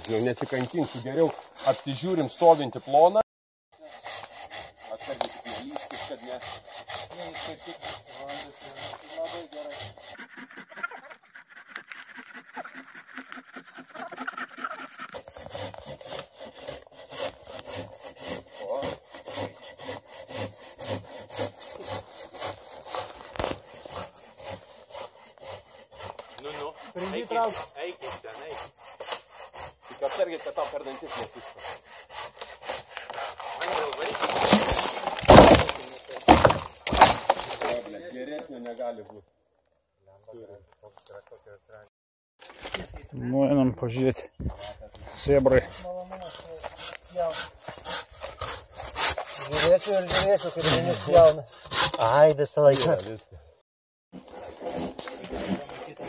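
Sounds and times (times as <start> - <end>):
hand saw cutting wood: 0.0 - 3.2, 3.8 - 39.2, 44.0 - 56.0.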